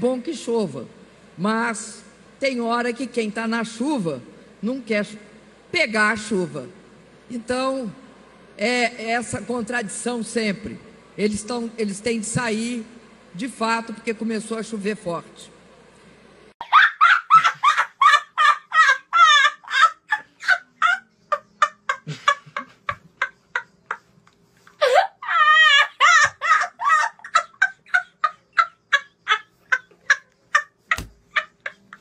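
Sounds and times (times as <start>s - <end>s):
boy laughing hysterically: 16.6s - 24.1s, 24.8s - 32.0s
boy squealing: 24.8s - 28.0s.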